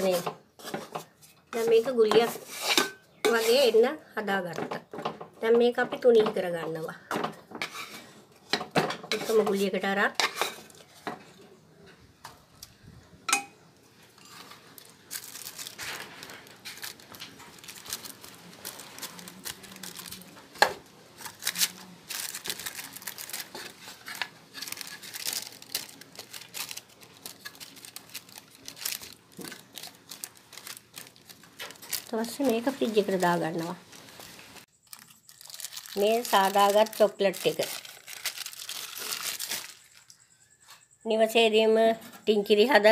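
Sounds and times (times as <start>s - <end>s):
paper lining crinkling: 14.2s - 40.2s.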